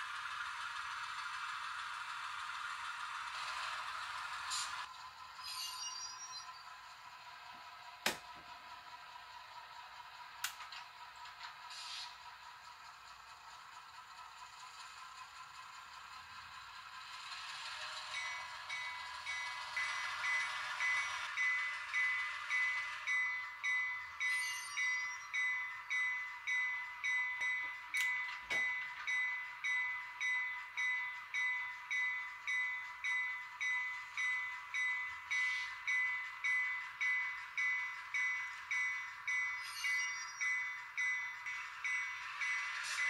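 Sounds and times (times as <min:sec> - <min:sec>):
locomotive engine bell ringing: 0:05.4 - 0:06.8, 0:16.4 - 0:43.0.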